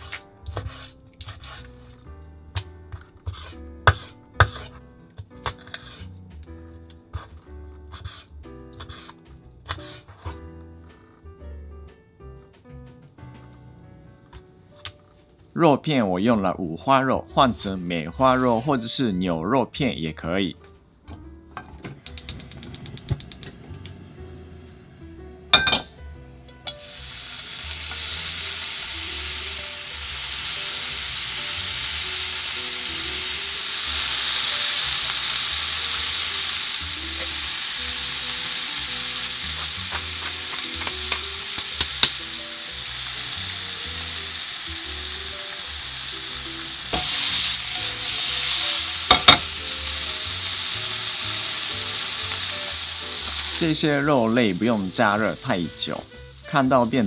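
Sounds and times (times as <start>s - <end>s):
chopsticks clicking against pan: 22.0s - 23.5s
sharp clicks: 22.0s - 23.5s
meat sizzling in a frying pan: 26.6s - 57.0s.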